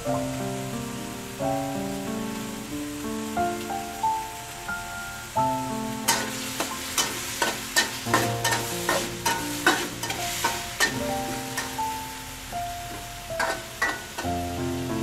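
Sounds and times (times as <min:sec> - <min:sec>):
meat sizzling in a wok: 0:00.0 - 0:15.0
metal spatula scraping pan: 0:06.1 - 0:11.8, 0:13.4 - 0:14.3
background music: 0:08.1 - 0:15.0.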